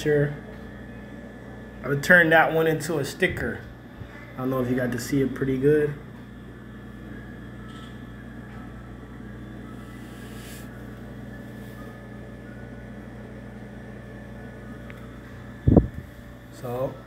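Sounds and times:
appliance motor hum: 0.0 - 17.0.

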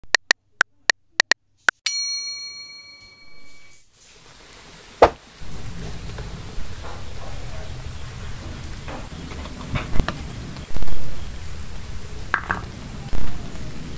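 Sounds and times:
bright bell-like ding: 1.9 - 3.8
steady hiss: 3.7 - 13.9.

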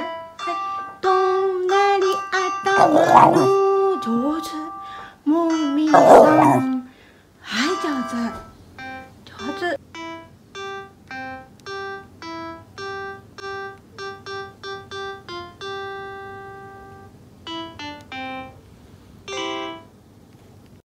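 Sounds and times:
simple piano tune: 19.3 - 19.9.

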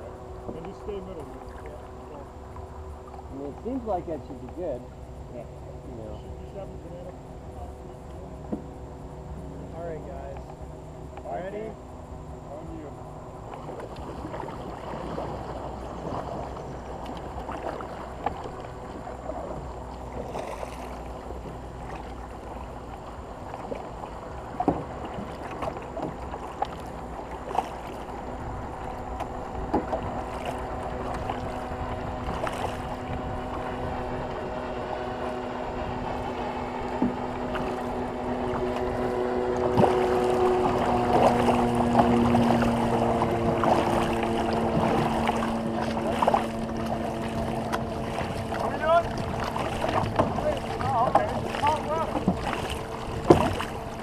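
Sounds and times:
droning hum: 0.0 - 54.0
knocks on canoe: 8.4 - 8.8, 24.5 - 27.9, 29.1 - 31.5, 36.8 - 54.0
paddles in rushing water: 12.4 - 54.0.

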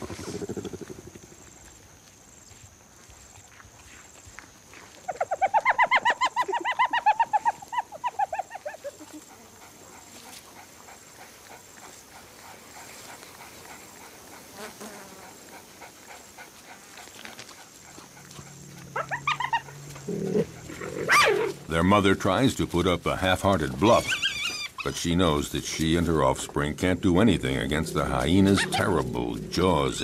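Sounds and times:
animal yelping calls: 5.1 - 10.1, 17.9 - 21.7, 23.8 - 25.0, 28.0 - 30.0.

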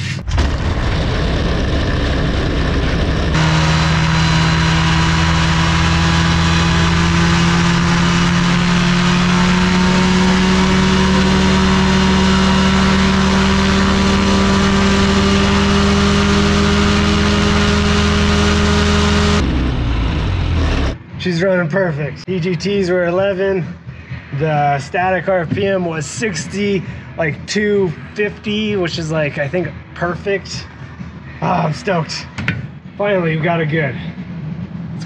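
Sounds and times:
aircraft engine and propeller running: 0.0 - 21.2, 25.2 - 35.0.

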